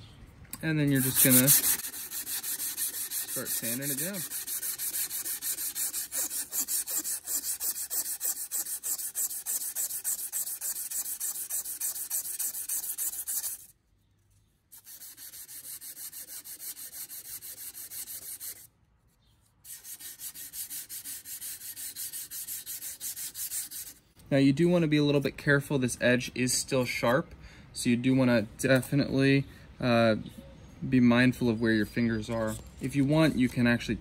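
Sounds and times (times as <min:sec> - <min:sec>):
sandpaper rubbing on steel: 0:00.8 - 0:13.7, 0:14.7 - 0:18.7, 0:19.6 - 0:24.0.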